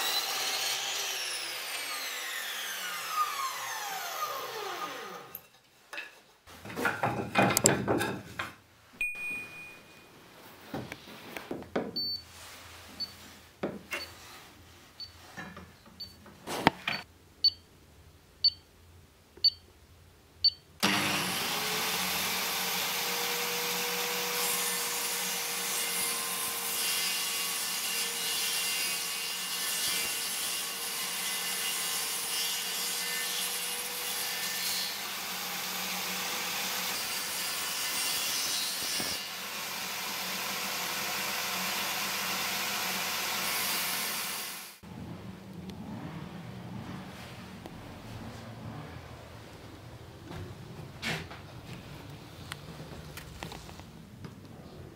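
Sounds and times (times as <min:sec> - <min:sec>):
table saw whining: 0:00.0 - 0:05.4, 0:20.8 - 0:44.8.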